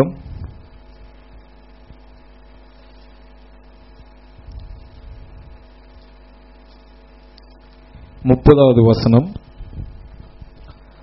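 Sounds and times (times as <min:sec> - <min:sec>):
electrical mains hum: 0:00.0 - 0:11.0
low rumble: 0:04.4 - 0:05.8.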